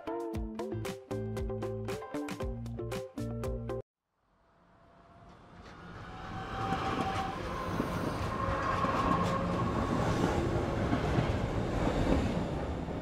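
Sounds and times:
train rumbling on rails: 5.0 - 13.0.

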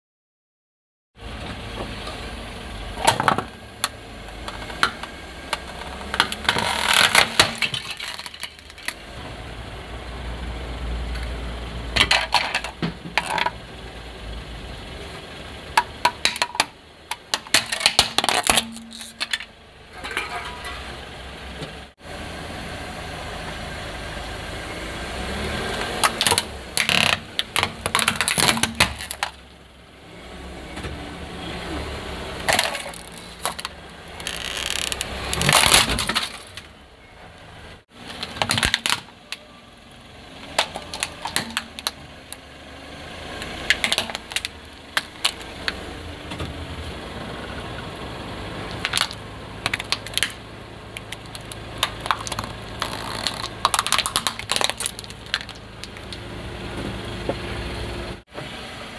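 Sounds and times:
plastic toys cracking under tyre: 3.0 - 9.0, 15.8 - 19.5, 26.0 - 29.4, 32.4 - 36.7, 38.0 - 39.5, 40.4 - 42.4, 43.4 - 45.8, 48.7 - 56.2
car engine running: 39.9 - 58.3.

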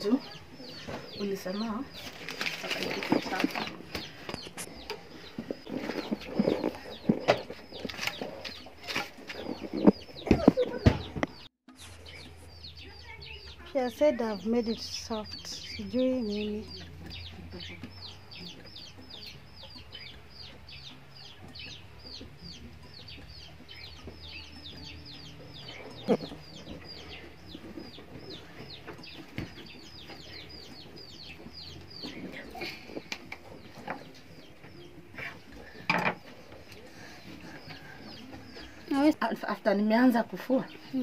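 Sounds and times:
chickens peeping: 0.0 - 41.0.

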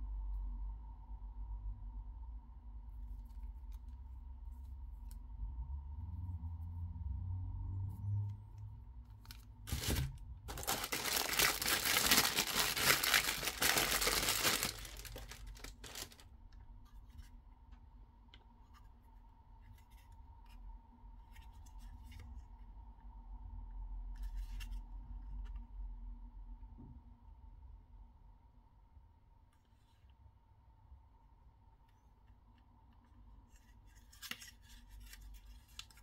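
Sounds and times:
packaging tearing: 9.3 - 16.2.

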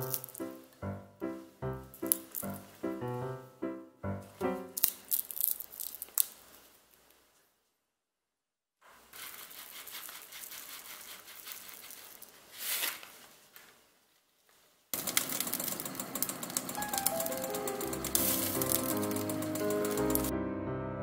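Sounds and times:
dry toppings rustling: 0.0 - 0.7, 2.0 - 2.8, 4.3 - 7.4, 9.0 - 13.9, 14.5 - 20.3
food sizzling under broiler: 15.0 - 20.3.

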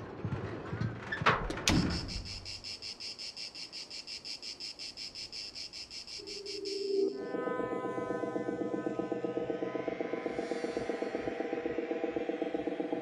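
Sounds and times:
insect chirping: 1.7 - 7.3.

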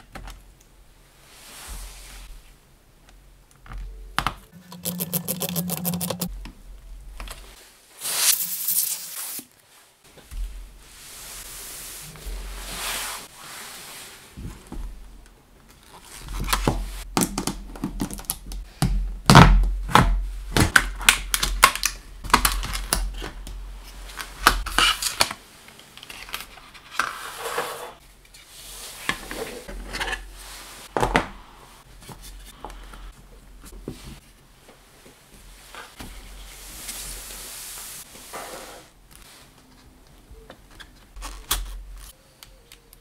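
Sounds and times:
plastic packaging clicking and crinkling: 20.6 - 23.6.

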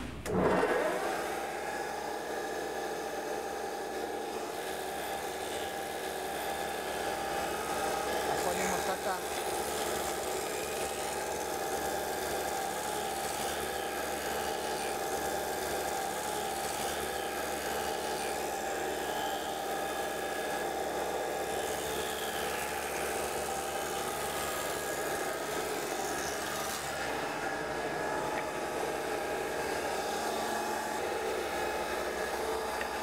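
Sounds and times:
thickness planer running: 0.0 - 33.0.

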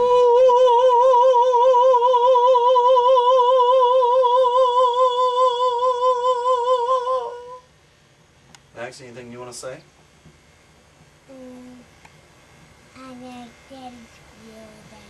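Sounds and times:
person singing long note: 0.0 - 7.6.

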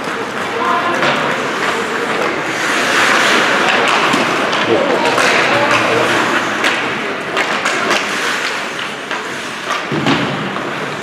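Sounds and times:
hockey sticks and puck knocking: 0.0 - 11.0
skates hissing on ice: 1.3 - 4.4, 5.8 - 9.9.

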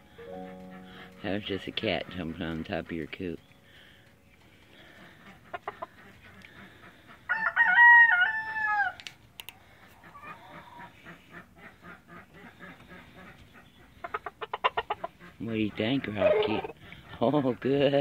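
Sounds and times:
faint chicken clucks: 0.1 - 18.0
rooster crowing: 7.3 - 9.0.

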